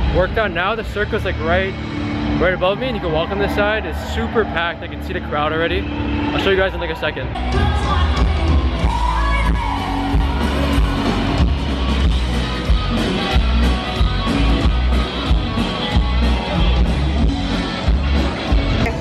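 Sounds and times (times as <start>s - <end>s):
crowd noise: 0.0s - 19.0s
live band playing: 7.4s - 19.0s.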